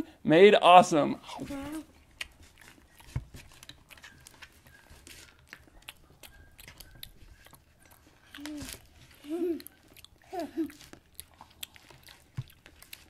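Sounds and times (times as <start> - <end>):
paper crinkling: 1.4 - 5.8, 6.4 - 9.6.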